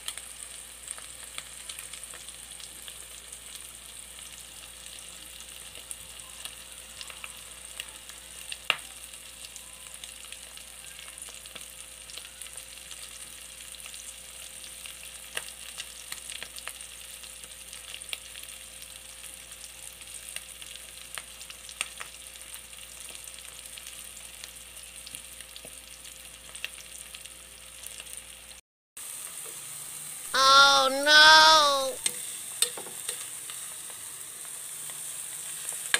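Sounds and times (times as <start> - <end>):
omelette sizzling in oil: 0.0 - 30.2, 32.2 - 35.9.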